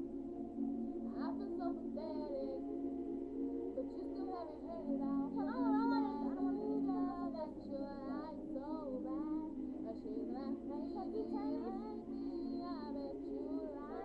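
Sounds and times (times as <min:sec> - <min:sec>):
person singing: 0:01.1 - 0:02.6, 0:03.8 - 0:14.0.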